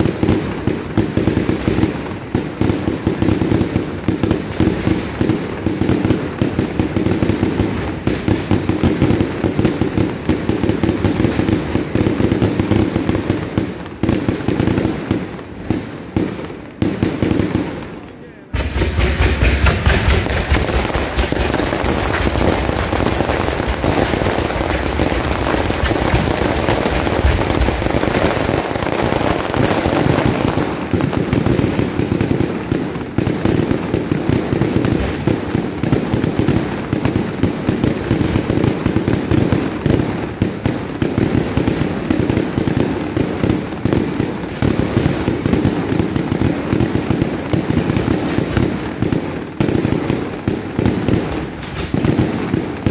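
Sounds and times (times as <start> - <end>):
deep fireworks booms: 0.0 - 52.9
fireworks bangs and crackling: 0.0 - 52.9.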